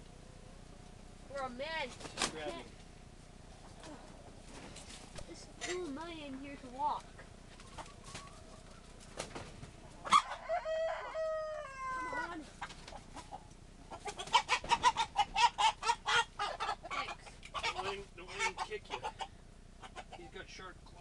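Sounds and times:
chickens squawking: 0:07.0 - 0:20.6
rooster crowing: 0:10.0 - 0:12.4.

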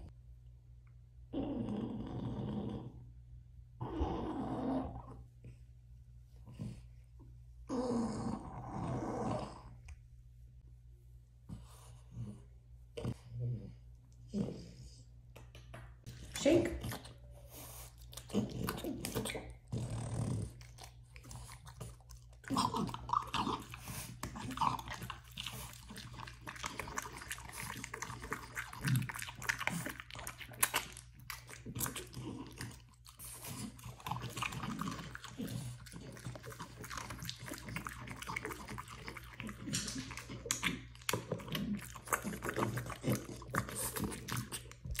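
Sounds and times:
dog chewing and crunching treats: 0:20.3 - 0:45.0.

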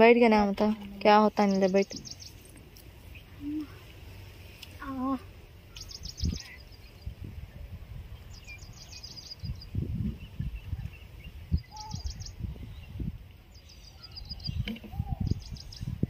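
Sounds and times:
bird chirping: 0:01.1 - 0:03.8, 0:05.7 - 0:07.2, 0:08.1 - 0:16.0.

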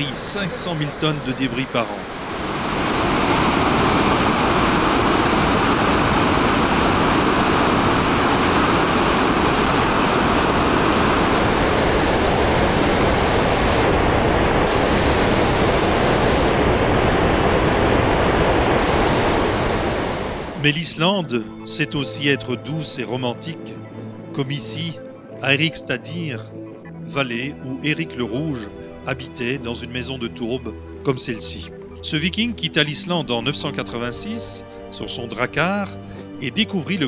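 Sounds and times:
waterfall rushing: 0:00.0 - 0:20.8.

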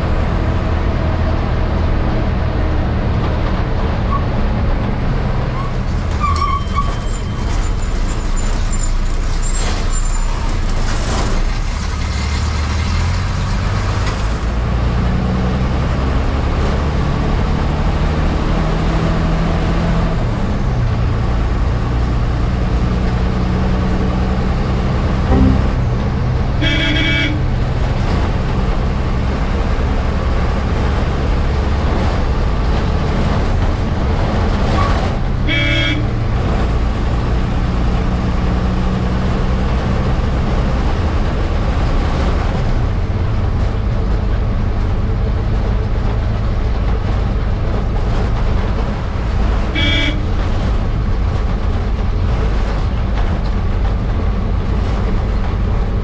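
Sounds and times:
bus engine running: 0:00.0 - 0:56.0
vehicle horn honking: 0:25.3 - 0:27.6, 0:35.5 - 0:36.1, 0:49.8 - 0:50.3.

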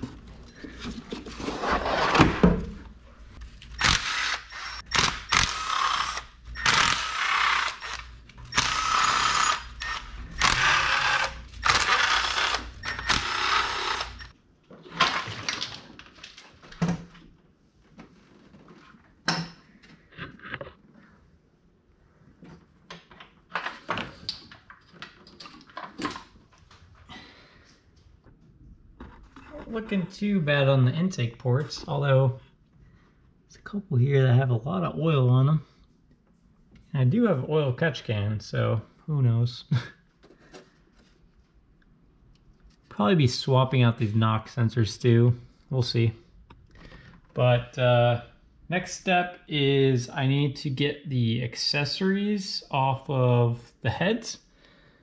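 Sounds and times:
power tool whirring: 0:03.8 - 0:14.3.

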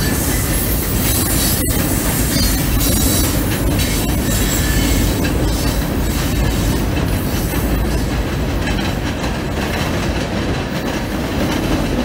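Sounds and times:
high-pitched wheel squeal: 0:00.0 - 0:06.2
train wheels rumbling on bridge: 0:00.0 - 0:12.0.

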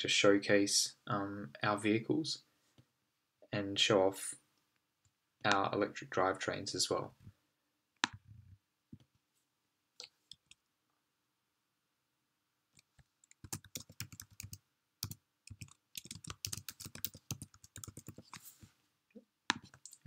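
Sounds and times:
computer keyboard typing: 0:12.8 - 0:18.4, 0:19.5 - 0:20.0.

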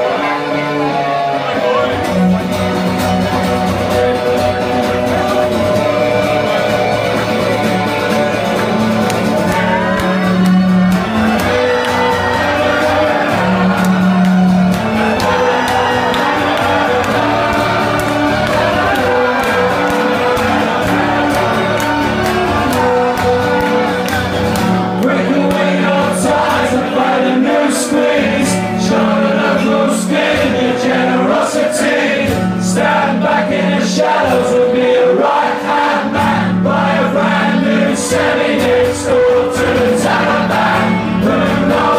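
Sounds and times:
acoustic guitar: 0:00.0 - 0:41.9
electric guitar: 0:00.0 - 0:41.9
voices singing: 0:00.0 - 0:41.9.

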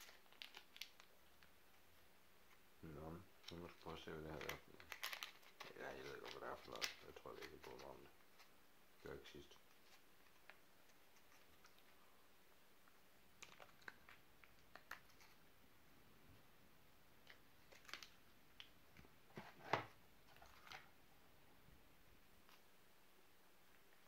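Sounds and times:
hands handling food pouches: 0:03.5 - 0:08.1.

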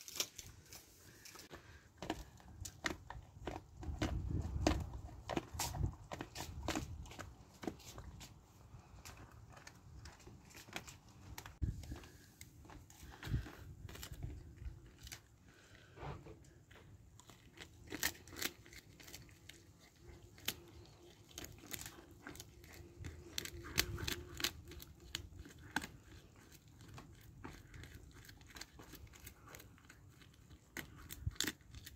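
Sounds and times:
paper wrapping crinkling: 0:00.0 - 0:01.6
dog gnawing a chew treat: 0:01.6 - 0:31.9.

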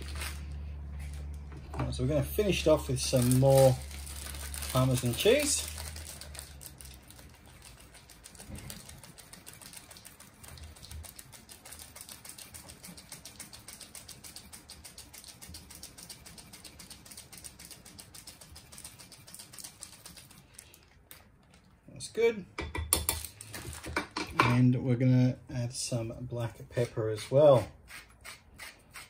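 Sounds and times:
cheese scraping on metal grater: 0:26.8 - 0:29.0.

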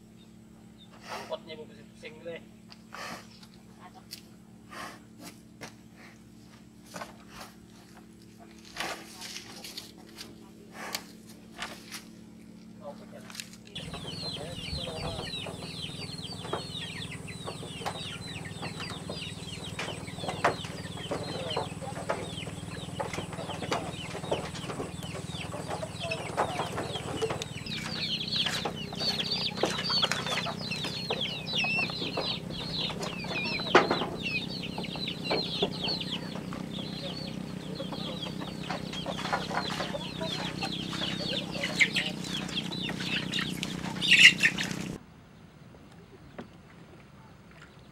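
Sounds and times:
steady low hum: 0:00.0 - 0:47.7
small birds chirping: 0:00.0 - 0:47.9
sharp knocks: 0:13.8 - 0:36.7.

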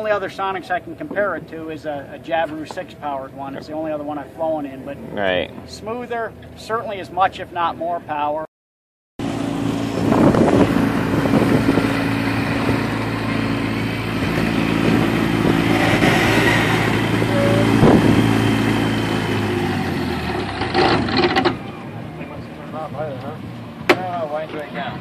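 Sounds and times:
aircraft engine drone: 0:09.2 - 0:25.0
engine knocks: 0:10.0 - 0:21.8.

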